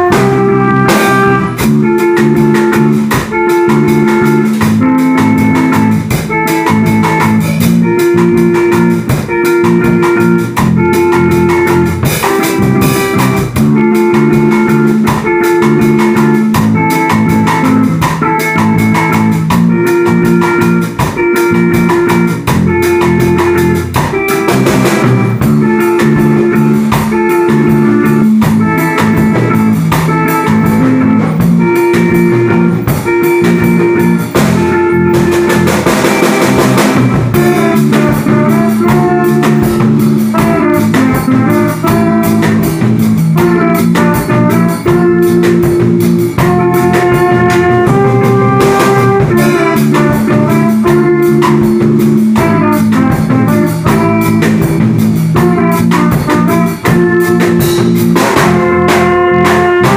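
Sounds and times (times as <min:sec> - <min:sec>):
amplified guitars: 0:00.0 - 0:59.9
drum kit beat: 0:00.0 - 0:59.9
trumpet melody: 0:00.0 - 0:59.9.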